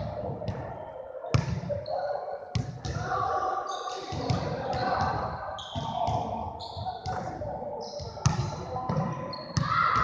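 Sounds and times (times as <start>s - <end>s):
players' voices: 0.0s - 10.0s
sneaker squeaks: 3.7s - 7.2s, 7.8s - 10.0s.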